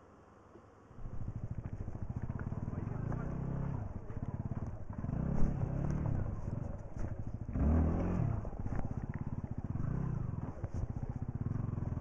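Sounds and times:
motorcycle engine idling: 1.0 - 12.0.

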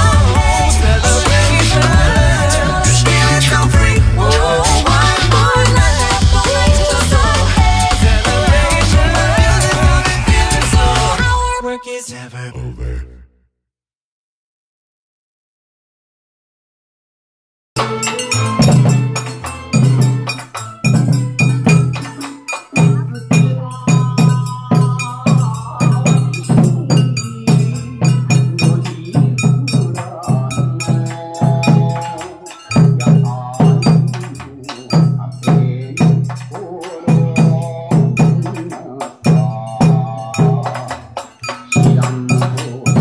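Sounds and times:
taiko drum beating: 0.0 - 11.2
dance music with held melody: 0.0 - 11.9, 17.8 - 43.0.

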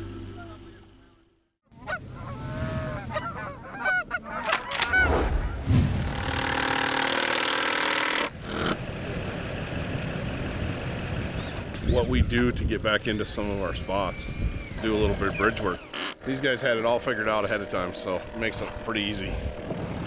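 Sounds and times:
geese honking: 1.7 - 5.2
cordless drill running: 6.2 - 8.8, 14.1 - 16.3, 18.0 - 20.0.

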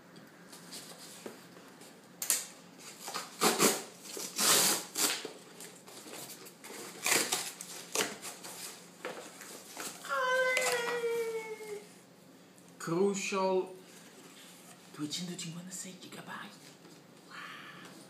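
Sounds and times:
cardboard box ripping and rustling: 2.9 - 5.3, 5.9 - 8.8.

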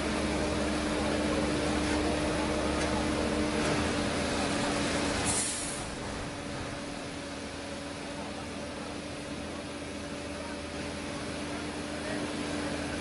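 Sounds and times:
truck engines droning: 0.0 - 13.0
short hiss: 5.3 - 5.9.

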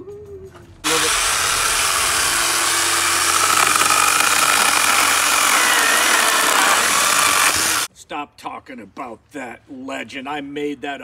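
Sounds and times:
electric chainsaw cutting branch: 0.9 - 7.9.

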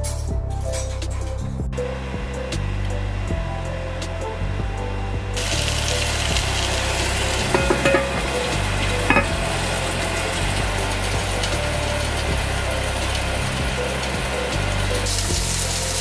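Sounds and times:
fish sizzling in hot oil: 5.4 - 16.0
clinks against pan: 7.5 - 9.5.

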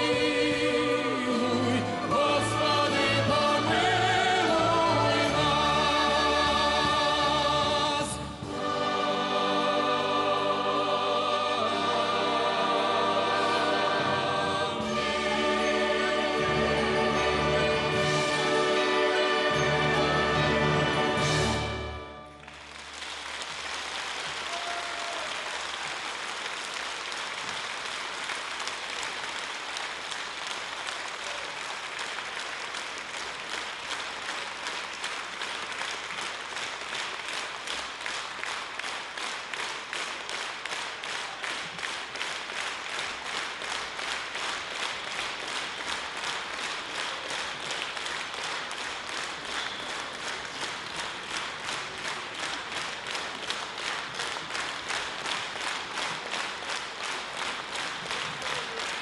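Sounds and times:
rhythmic clapping in unison: 0.0 - 59.0
audience applauding: 8.6 - 59.0.

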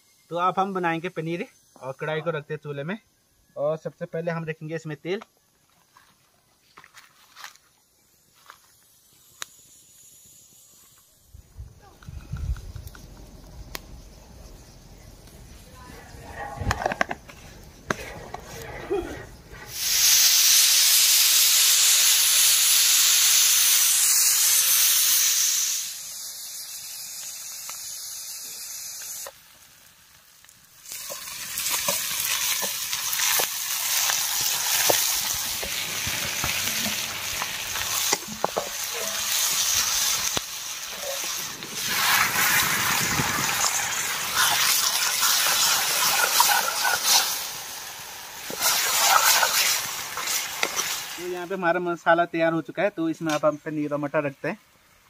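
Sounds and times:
spices sizzling in hot oil: 0.0 - 3.3, 7.4 - 14.8, 19.6 - 55.0.

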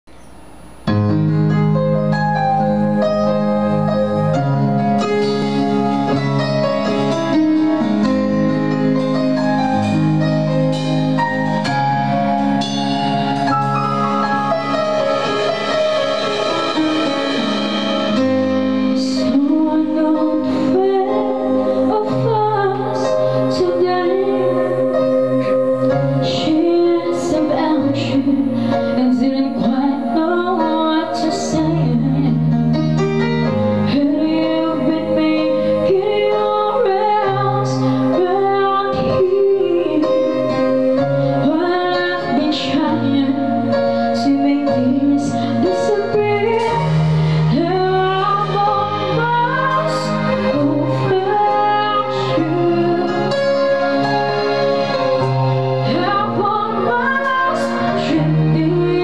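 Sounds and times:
live band playing slow song: 0.3 - 59.0
woman singing: 16.3 - 32.7, 33.9 - 55.2, 55.8 - 59.0.

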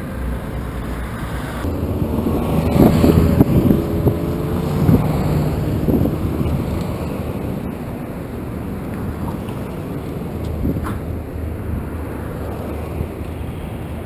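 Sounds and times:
freeway traffic passing: 0.0 - 14.0
wind buffeting microphone: 0.0 - 14.0.

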